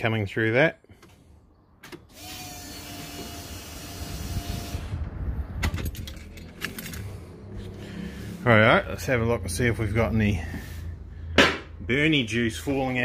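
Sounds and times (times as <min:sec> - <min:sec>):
keys jingling: 0:05.7 - 0:07.2.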